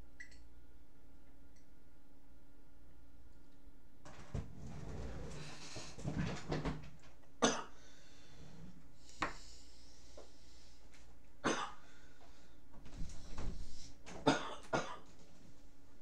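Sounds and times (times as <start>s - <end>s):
person getting up from chair: 4.1s - 7.0s, 12.8s - 14.3s.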